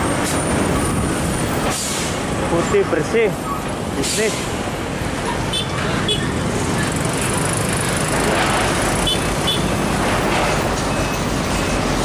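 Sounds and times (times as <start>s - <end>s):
road traffic noise: 0.0s - 12.0s
motorcycle passing: 6.3s - 9.5s.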